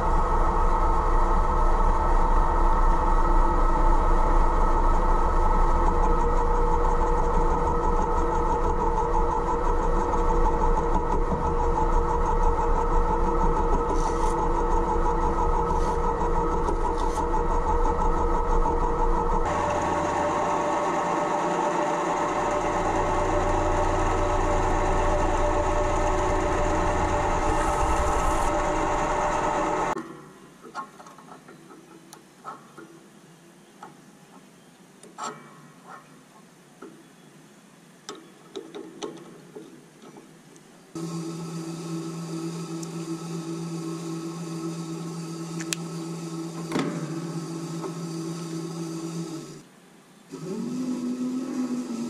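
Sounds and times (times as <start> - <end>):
lathe motor humming: 0.0 - 30.0, 41.0 - 49.7, 50.3 - 52.0.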